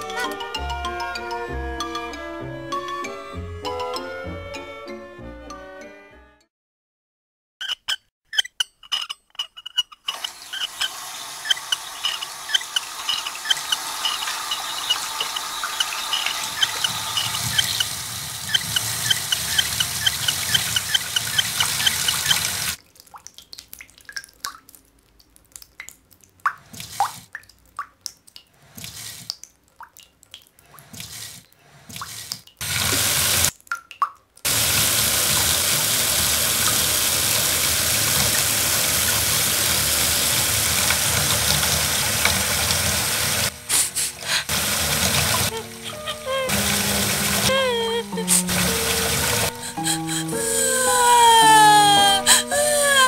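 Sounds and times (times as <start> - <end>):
drips and splashes: 10.1 - 43.6, 44.2 - 49.7
water running from a tap: 10.2 - 22.8, 31.9 - 33.5, 34.5 - 53.0
dripping water plinks: 18.5 - 31.1, 33.5 - 34.5.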